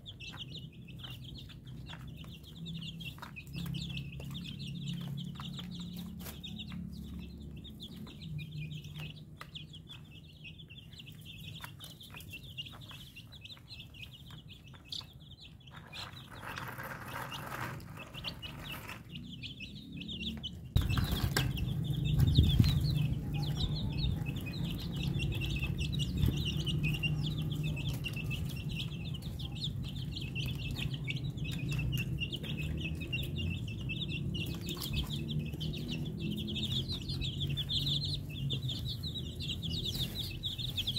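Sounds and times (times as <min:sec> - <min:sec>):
chicks peeping: 0:00.0 - 0:40.9
low rumble: 0:20.8 - 0:39.7.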